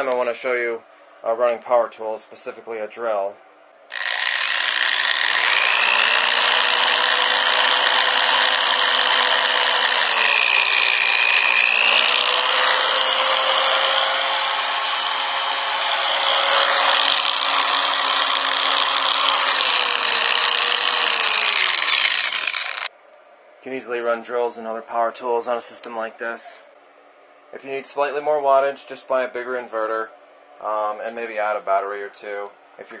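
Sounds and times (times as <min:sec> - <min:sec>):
electric drill motor whine: 0:03.9 - 0:22.9.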